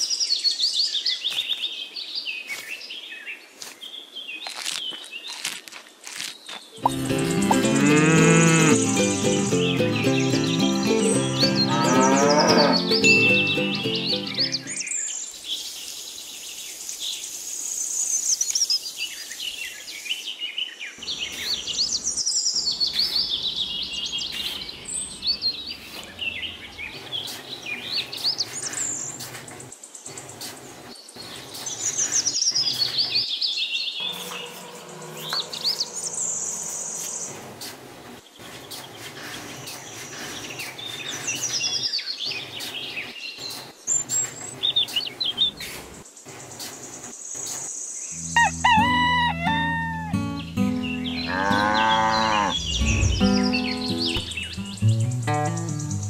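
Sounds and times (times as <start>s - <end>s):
birds chirping and singing: 6.8s - 15.3s, 20.9s - 29.2s, 31.2s - 37.7s, 48.0s - 56.0s.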